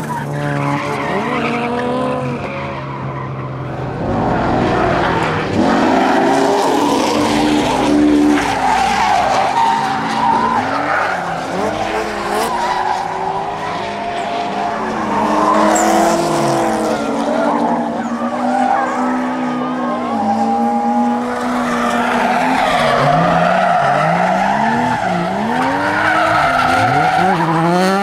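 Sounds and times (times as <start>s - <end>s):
car engines revving: 0.0s - 28.0s.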